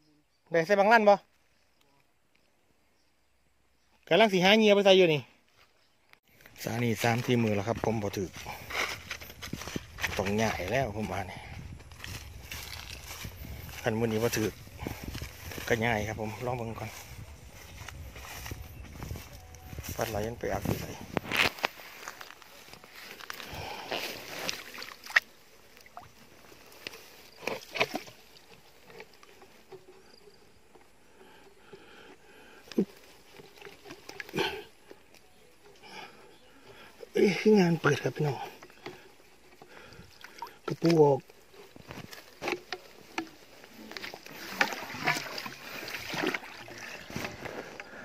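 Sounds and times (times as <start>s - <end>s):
wet grass rustling: 6.2s - 48.0s
splashing in shallow water: 22.1s - 29.4s, 39.9s - 41.2s, 42.4s - 47.8s.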